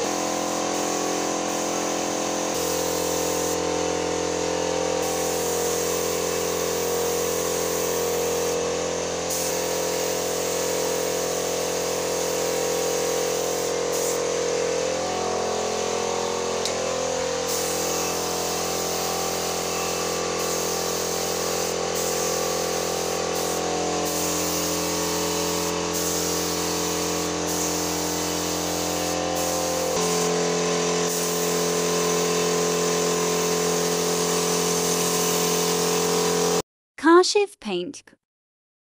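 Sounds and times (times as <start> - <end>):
spray gun hissing: 0.0 - 3.7, 5.0 - 8.7, 9.3 - 14.3, 17.4 - 30.4, 31.0 - 36.1.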